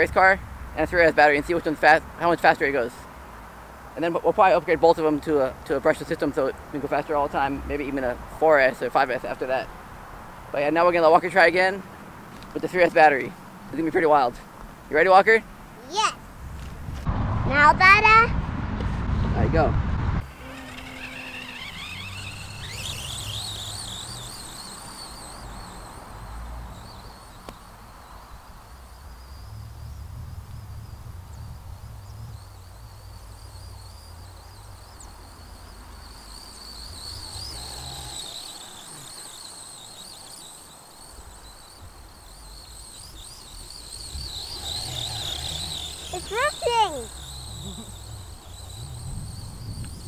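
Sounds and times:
low rumble: 0:17.0 - 0:20.3
electric motor whining: 0:20.2 - 0:50.0.

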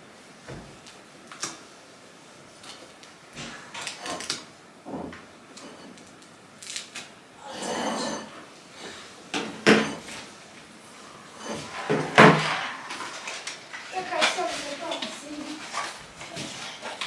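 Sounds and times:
objects knocking and clattering: 0:03.4 - 0:06.2, 0:09.3 - 0:10.3, 0:11.4 - 0:17.0
scraping or rustling: 0:09.8 - 0:17.0.

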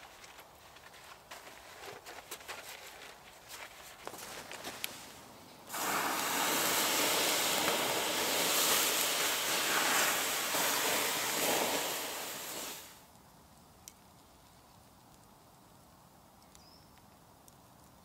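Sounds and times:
water hissing on hot embers: 0:04.8 - 0:13.1.

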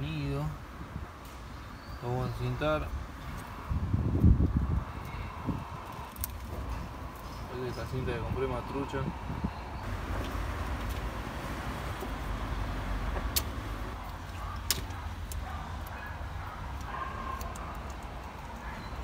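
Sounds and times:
wires handling noise: 0:05.8 - 0:07.3, 0:13.0 - 0:18.8
steady low rumble: 0:08.0 - 0:18.6.

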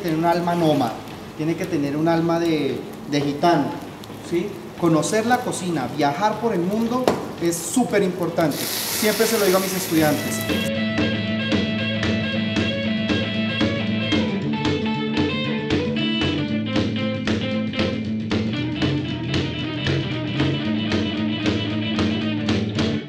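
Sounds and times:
guitar music over a beat: 0:10.1 - 0:23.0.

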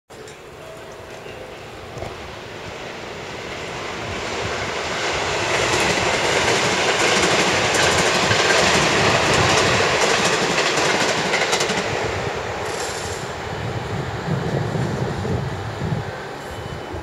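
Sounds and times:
train rumbling along tracks: 0:00.1 - 0:17.0
wheels clicking on rails: 0:12.6 - 0:13.3.

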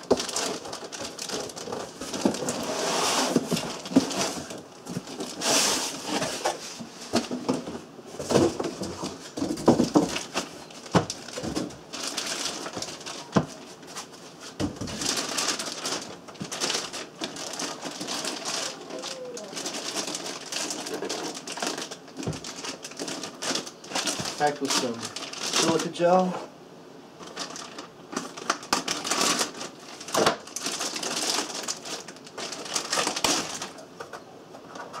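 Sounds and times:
plastic bag crinkling: 0:00.0 - 0:06.5, 0:08.2 - 0:26.3, 0:27.2 - 0:34.0
foam and cardboard scraping: 0:00.1 - 0:22.5.

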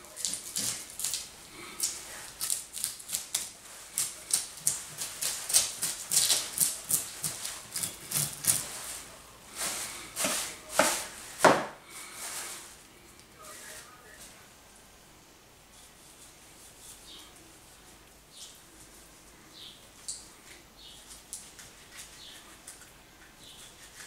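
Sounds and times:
knife scraping fish scales: 0:00.2 - 0:08.8, 0:23.5 - 0:24.0
plastic sheeting rustling: 0:08.6 - 0:12.8.

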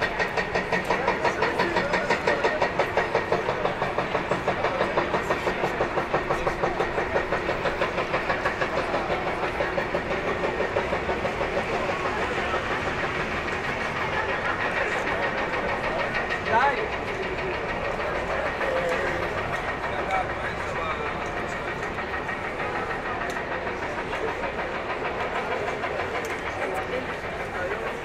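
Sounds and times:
people: 0:00.0 - 0:28.0
traffic: 0:08.9 - 0:22.0.

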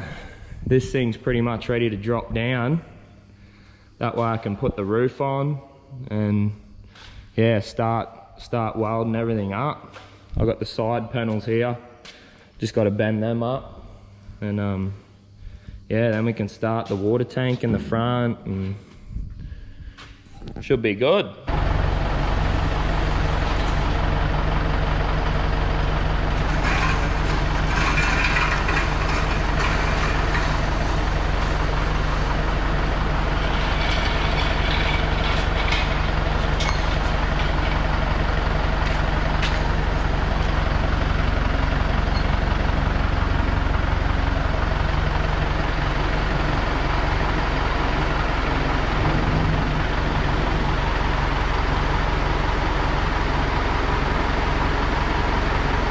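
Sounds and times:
tractor engine humming: 0:21.5 - 0:55.9
metallic clatter: 0:26.3 - 0:38.2.

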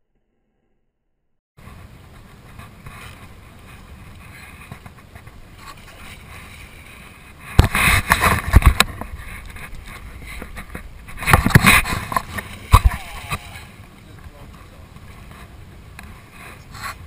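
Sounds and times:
water around boat: 0:01.6 - 0:17.0
wind: 0:01.6 - 0:17.0
loud thumps and rushes: 0:07.5 - 0:09.1, 0:10.4 - 0:13.1.

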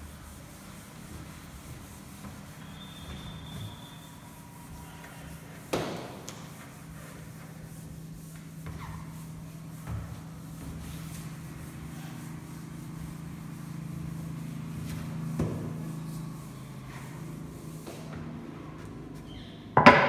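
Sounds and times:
duster rubbing chalkboard: 0:00.0 - 0:19.6
sharp knock: 0:19.8 - 0:20.0.

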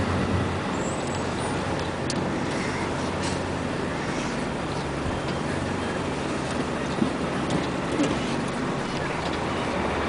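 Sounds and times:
diesel engine humming: 0:00.0 - 0:10.0.

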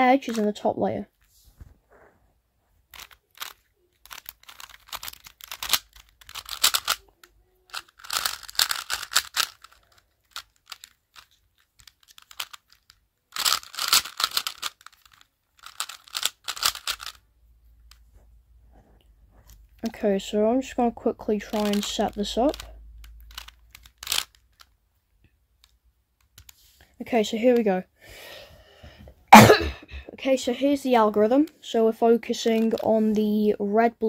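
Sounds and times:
puzzle cube clicking: 0:02.9 - 0:17.2, 0:21.4 - 0:24.8, 0:25.5 - 0:26.7.

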